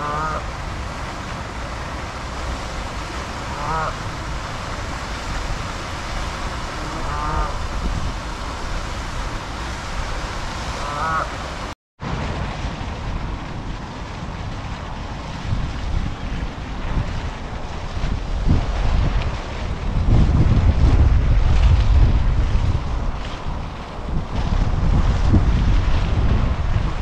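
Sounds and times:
geese honking: 0.0 - 0.4, 3.5 - 4.1, 6.7 - 7.6, 10.8 - 11.4
rushing water: 0.0 - 27.0
wind: 0.0 - 27.0.

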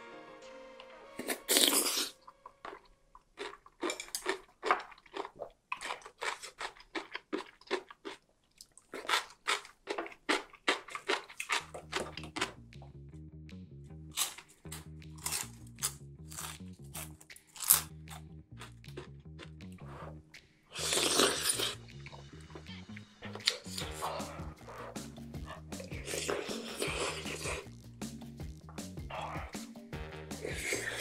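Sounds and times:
loud slurp of noodles: 1.2 - 2.3, 20.7 - 21.8, 26.0 - 27.6, 30.4 - 31.0
close-up chewing: 1.2 - 12.9, 14.1 - 27.7
background music with low beat: 11.6 - 20.7, 21.7 - 31.0.

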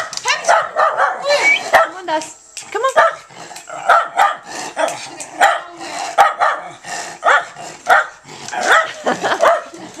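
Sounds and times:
dog barking: 0.0 - 2.0, 3.0 - 4.5, 5.4 - 9.8.

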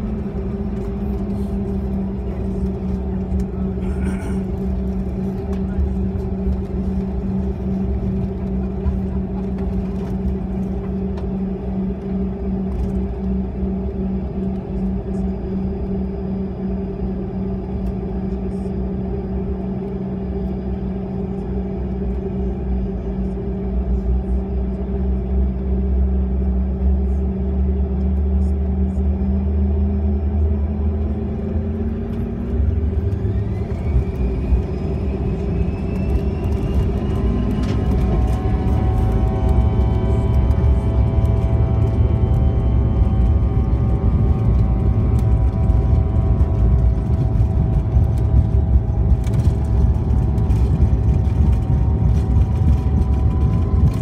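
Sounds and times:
jet engine hum: 0.0 - 54.0
engine whine spooling up: 28.4 - 54.0.

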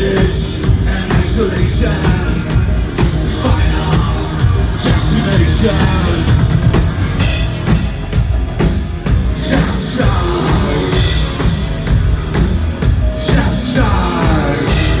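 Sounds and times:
person singing: 0.0 - 6.9, 9.2 - 11.8, 13.0 - 15.0
band playing loud: 0.0 - 15.0
heavy drum beats: 0.0 - 15.0.

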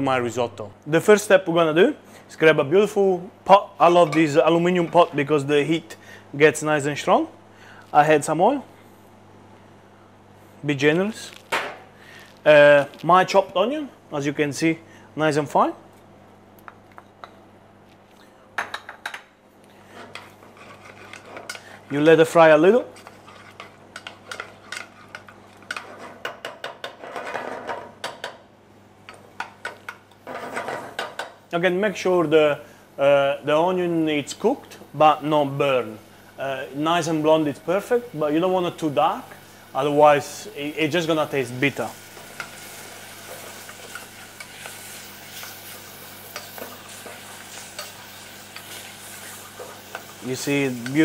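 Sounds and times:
wooden spoon scraping a pan: 19.9 - 21.8, 22.8 - 26.2
onion frying in oil: 32.7 - 51.0.

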